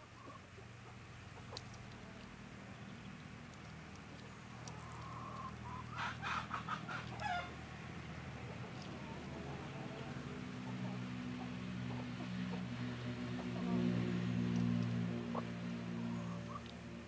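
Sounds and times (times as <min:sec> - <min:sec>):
hens clucking: 0:04.5 - 0:07.6, 0:08.4 - 0:14.2, 0:14.8 - 0:16.8.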